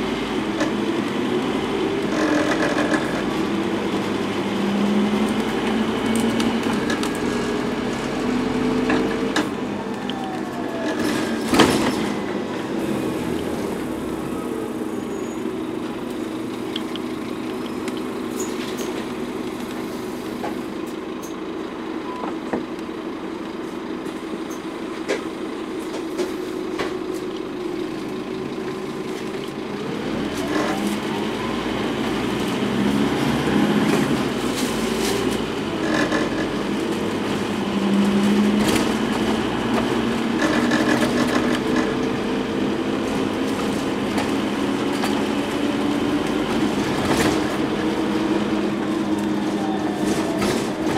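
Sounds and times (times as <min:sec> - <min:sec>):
bus diesel engine: 0:00.0 - 0:50.9
bus body rattles: 0:42.9 - 0:50.9.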